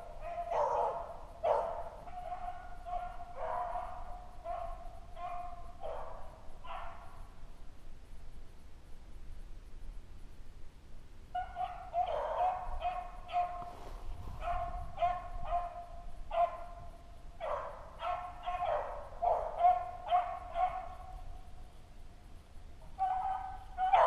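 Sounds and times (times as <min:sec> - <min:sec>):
beagles baying: 0:00.0 - 0:07.2, 0:11.3 - 0:13.7, 0:14.4 - 0:21.4, 0:22.8 - 0:24.0.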